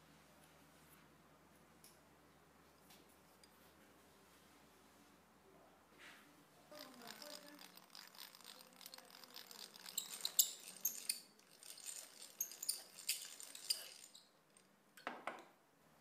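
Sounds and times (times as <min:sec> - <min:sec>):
metal clicks and clinks of hand drill: 0:06.7 - 0:14.7.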